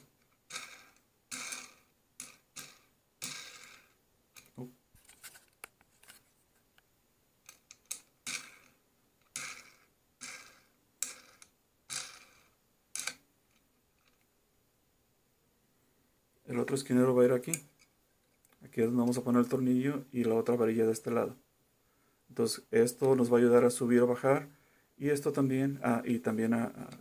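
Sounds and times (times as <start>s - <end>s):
metal nut scraping on threaded rod: 0.5s - 4.0s.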